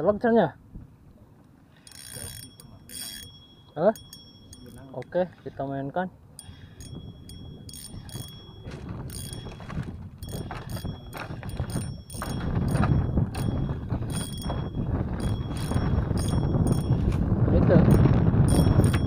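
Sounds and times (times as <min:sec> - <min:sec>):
fishing reel gears whirring: 0:01.8 - 0:05.2, 0:06.4 - 0:17.1, 0:17.9 - 0:19.0.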